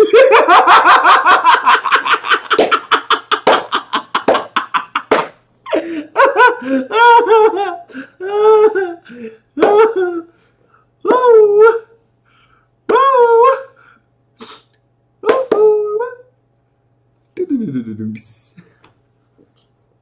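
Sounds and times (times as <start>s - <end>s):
man laughing hard: 0.0s - 10.3s
man gasping: 7.8s - 8.2s, 9.0s - 9.5s, 12.2s - 12.7s, 13.7s - 14.8s.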